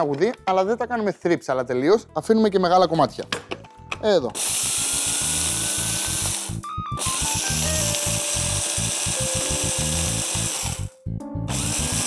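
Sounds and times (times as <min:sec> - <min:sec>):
electric chopper grinding spices: 0:04.4 - 0:12.0.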